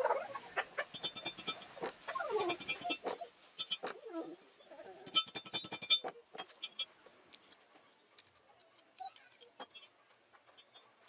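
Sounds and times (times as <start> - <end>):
hammer striking steel: 0.9 - 1.7, 5.1 - 6.9.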